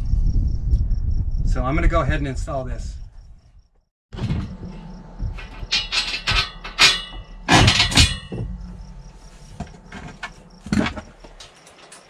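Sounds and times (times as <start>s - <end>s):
steel frame clanking on metal rail: 4.2s - 12.0s.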